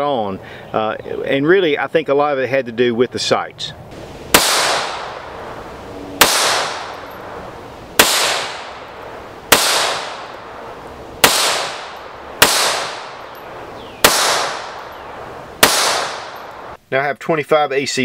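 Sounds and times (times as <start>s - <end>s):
pistol shots with echo: 4.3s - 5.6s, 6.2s - 16.8s.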